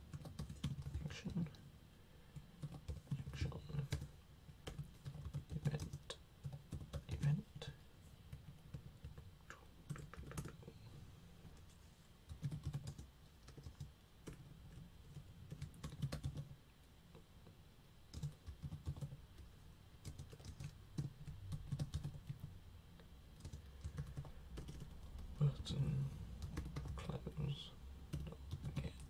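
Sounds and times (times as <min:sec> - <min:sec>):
keyboard typing: 0:00.1 - 0:01.6, 0:02.6 - 0:07.4, 0:09.9 - 0:10.7, 0:12.3 - 0:16.6, 0:18.1 - 0:22.5, 0:23.4 - 0:25.4, 0:26.4 - 0:27.1, 0:28.1 - 0:29.0.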